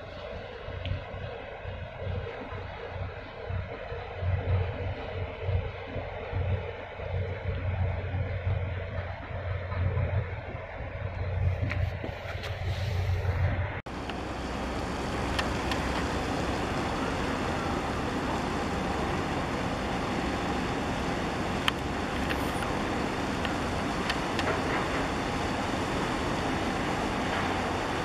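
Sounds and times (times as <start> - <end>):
ship rumbling past: 0.0 - 28.0
faint ticks: 14.0 - 16.5.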